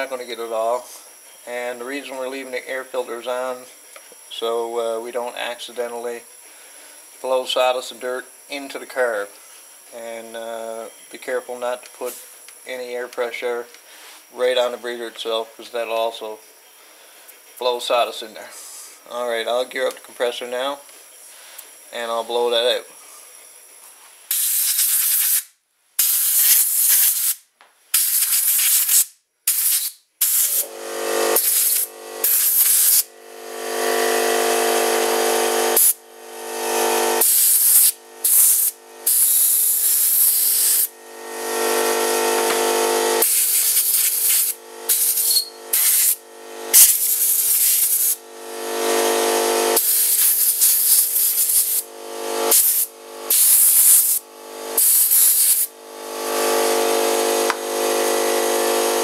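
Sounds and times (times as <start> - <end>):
compressed air blow gun bursts: 24.3 - 59.0.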